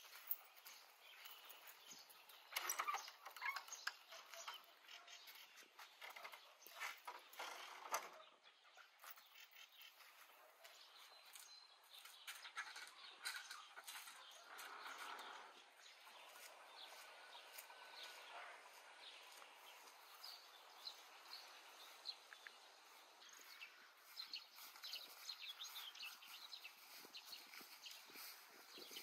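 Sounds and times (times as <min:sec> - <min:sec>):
bird chirps: 0:00.0 - 0:29.0
faint rural outdoor ambience: 0:00.0 - 0:29.0.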